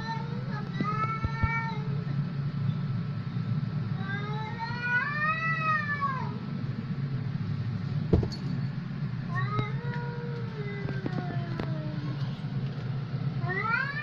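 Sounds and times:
cat yowling: 0:13.4 - 0:14.0.

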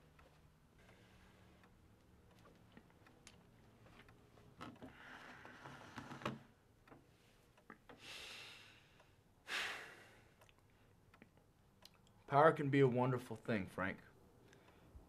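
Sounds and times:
loud breath out: 0:08.0 - 0:10.4.

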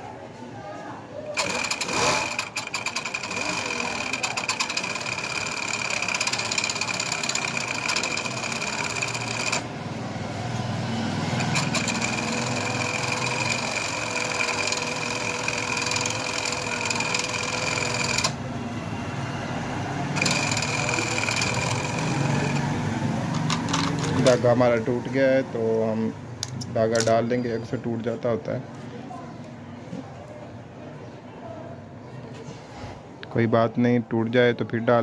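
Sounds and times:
overlock machine stitching: 0:01.3 - 0:09.9, 0:10.5 - 0:18.5, 0:20.0 - 0:24.5.

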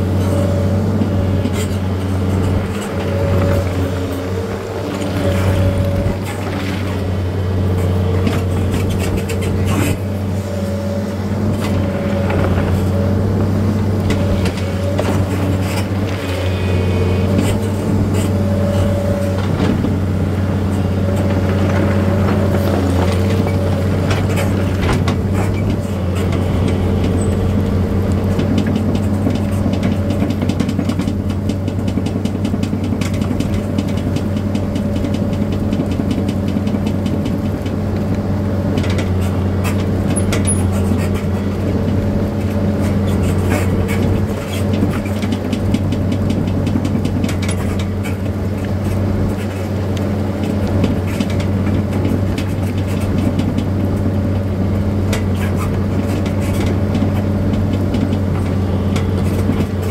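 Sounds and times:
machine engine running: 0:00.0 - 0:59.9.

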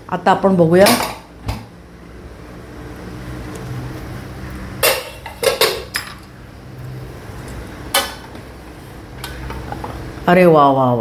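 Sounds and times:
metal utensils clattering: 0:04.8 - 0:06.3.

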